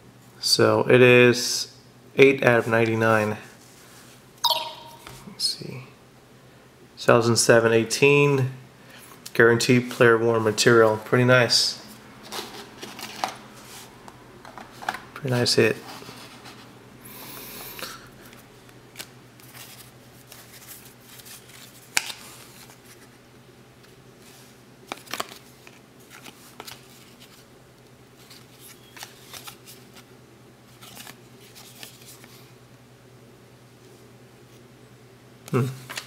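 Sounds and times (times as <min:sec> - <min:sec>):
cards flipping and snapping: 0:19.0 - 0:22.8, 0:24.9 - 0:27.4, 0:28.3 - 0:29.8.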